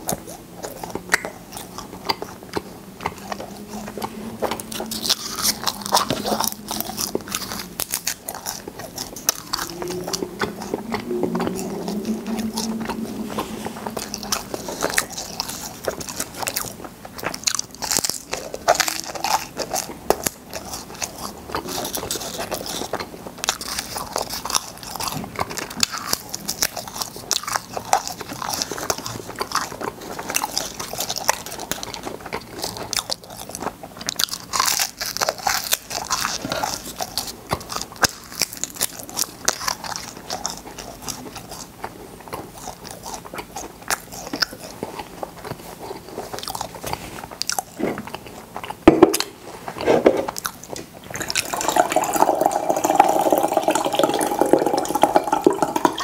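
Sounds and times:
crunching hard candy: 0:00.0 - 0:56.0
steady rushing sound: 0:09.6 - 0:15.0.

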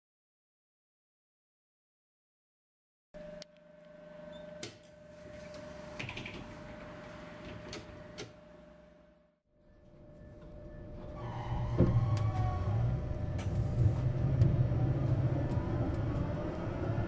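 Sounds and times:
tram electrical hum and whine: 0:03.2 - 0:17.0
tram doors clicking open: 0:10.4 - 0:17.0.

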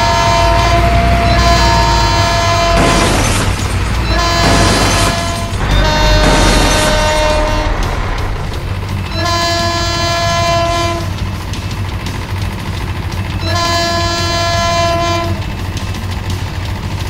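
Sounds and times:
train horn blasts: 0:00.0 - 0:11.3, 0:13.4 - 0:15.7
low rumble of running train: 0:00.0 - 0:17.0.

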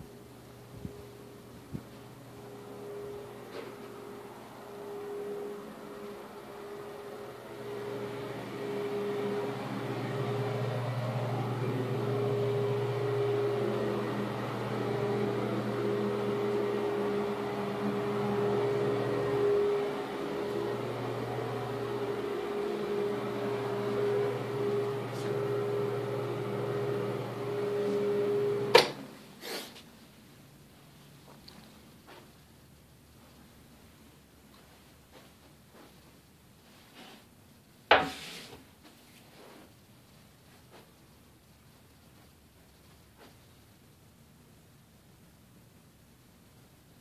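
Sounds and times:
motor humming: 0:00.0 - 0:29.0.

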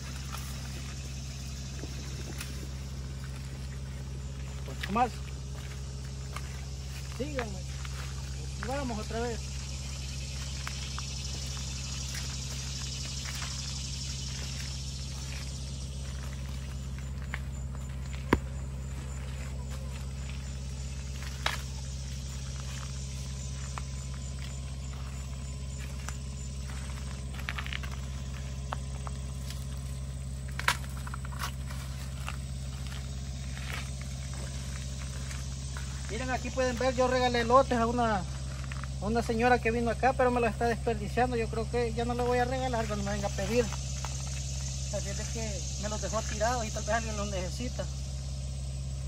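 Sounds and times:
footsteps and rustling in corn: 0:00.0 - 0:47.8
low hum: 0:00.0 - 0:49.0
corn ears snapping off: 0:30.5 - 0:32.4.

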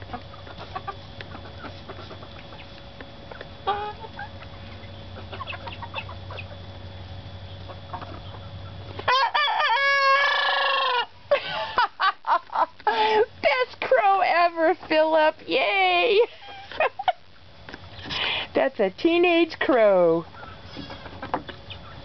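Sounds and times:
hens clucking: 0:00.0 - 0:11.2, 0:20.2 - 0:22.0
rooster crowing: 0:09.1 - 0:11.2.

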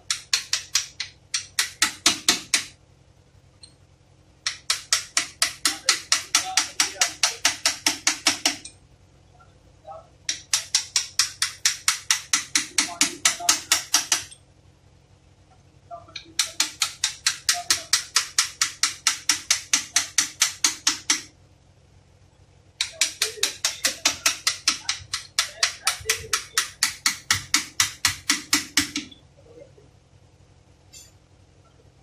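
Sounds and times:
ratchet wrench clicking: 0:00.1 - 0:02.7.

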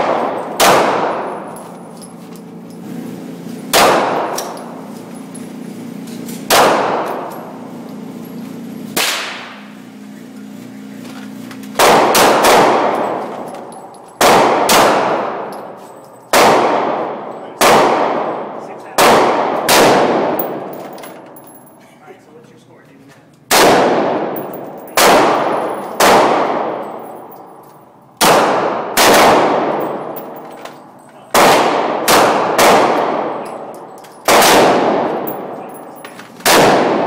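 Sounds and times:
pistol shots echoing indoors: 0:00.0 - 0:01.7, 0:03.7 - 0:04.8, 0:06.5 - 0:07.6, 0:09.0 - 0:09.7, 0:11.8 - 0:15.6, 0:16.2 - 0:21.0, 0:23.5 - 0:30.5, 0:31.3 - 0:37.0.

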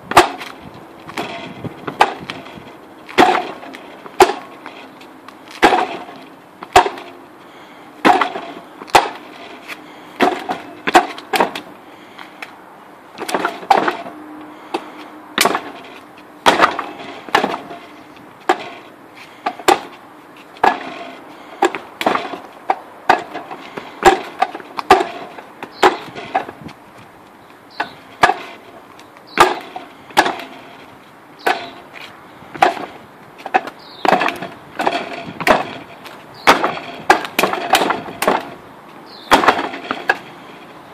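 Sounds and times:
sharp wooden knocks on dummy: 0:00.1 - 0:04.5, 0:05.5 - 0:07.1, 0:08.0 - 0:09.3, 0:10.2 - 0:11.7, 0:13.2 - 0:14.1, 0:15.4 - 0:15.8, 0:16.4 - 0:17.8, 0:19.4 - 0:19.9, 0:21.6 - 0:26.7, 0:29.4 - 0:30.5, 0:32.5 - 0:38.6, 0:39.3 - 0:40.2.

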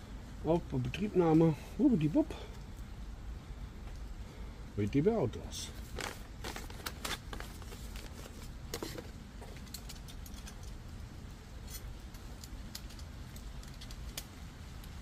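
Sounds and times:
low background rumble: 0:00.0 - 0:15.0
paper being folded: 0:05.7 - 0:09.0
paper crinkles and clicks: 0:05.8 - 0:10.8.

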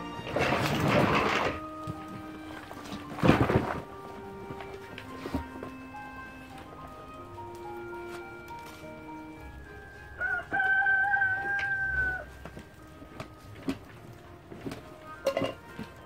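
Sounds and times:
soft background music: 0:00.0 - 0:16.0
rooster crowing: 0:10.0 - 0:12.7.

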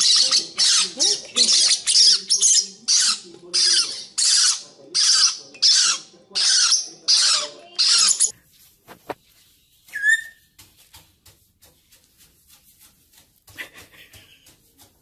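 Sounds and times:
parrotlets squawking: 0:00.0 - 0:08.3.

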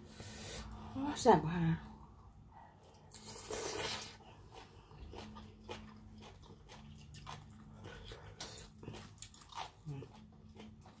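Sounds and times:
wet chewing: 0:02.8 - 0:11.0.

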